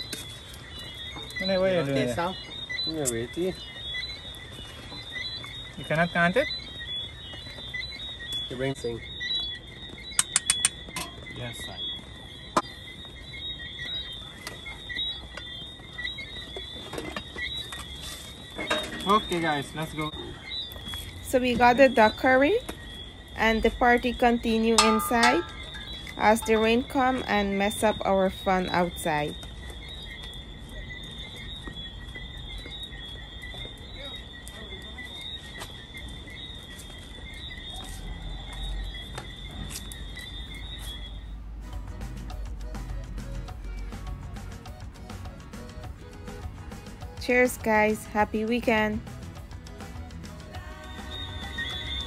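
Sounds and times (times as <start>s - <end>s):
night insects chirring: 0.0s - 52.0s
metal pot lids clinking: 24.8s - 25.9s.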